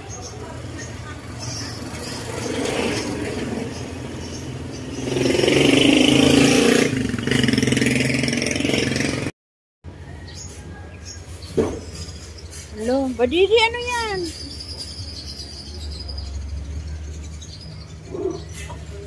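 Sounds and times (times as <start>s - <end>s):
small motorcycle engine revving: 1.2s - 9.3s.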